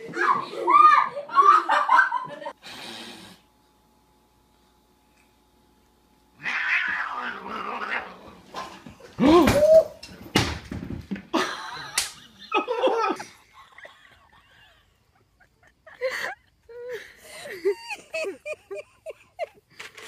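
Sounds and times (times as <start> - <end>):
cats yowling: 6.4 - 8.4.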